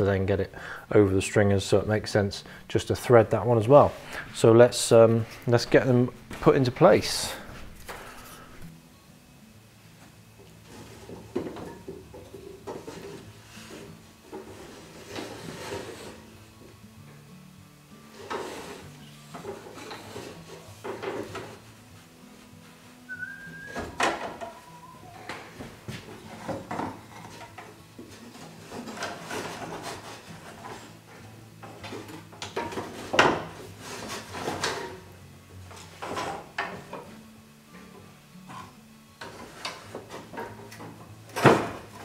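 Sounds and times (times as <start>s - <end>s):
wood knocking and clattering: 11.0s - 13.2s, 19.3s - 21.6s, 23.7s - 24.6s, 25.2s - 30.8s, 31.6s - 35.0s, 39.2s - 42.0s
wood rubbing on wood: 12.6s - 16.3s, 18.1s - 22.1s, 22.7s - 31.2s.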